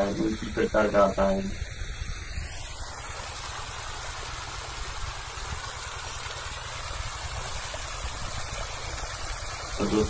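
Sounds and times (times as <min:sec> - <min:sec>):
water gushing from pipe: 0:00.0 - 0:10.0.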